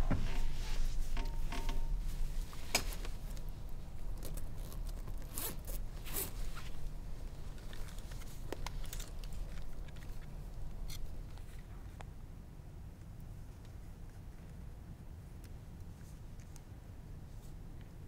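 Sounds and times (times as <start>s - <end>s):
bag rustling: 2.2s - 10.4s
backpack zipper opening: 4.6s - 6.4s.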